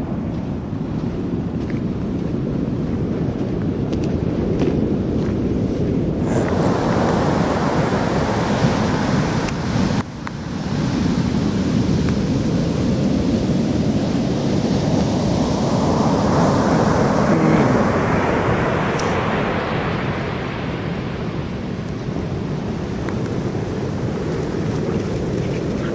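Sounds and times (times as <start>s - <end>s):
wind on microphone: 0.0s - 25.9s
ocean surf breaking: 6.1s - 25.9s.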